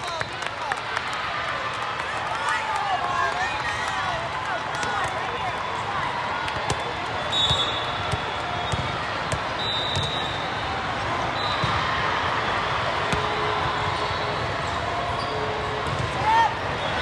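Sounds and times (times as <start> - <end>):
sneakers squeaking: 6.6 - 10.6, 11.2 - 11.9, 13.1 - 17.0
basketball bouncing: 7.5 - 10.2, 13.1 - 13.4.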